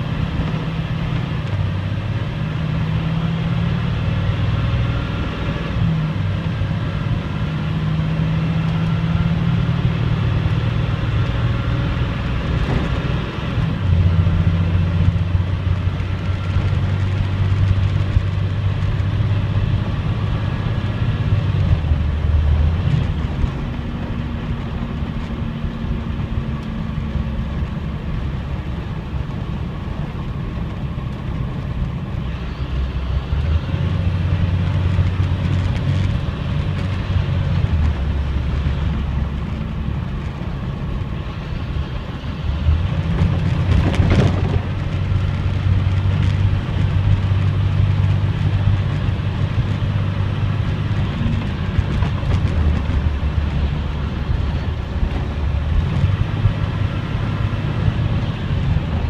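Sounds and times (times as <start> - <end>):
bus engine running: 0.0 - 59.0
road noise: 0.0 - 59.0.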